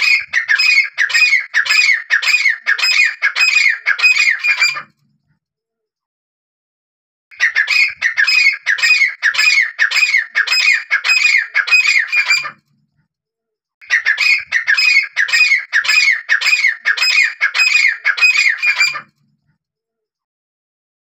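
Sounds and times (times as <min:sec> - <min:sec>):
bird calling repeated notes: 0:00.0 - 0:04.9, 0:07.3 - 0:12.6, 0:13.8 - 0:19.1.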